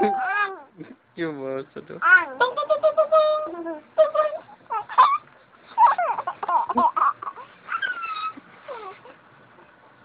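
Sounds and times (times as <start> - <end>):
baby whimpering and squealing: 0.0 - 0.7, 2.0 - 9.2.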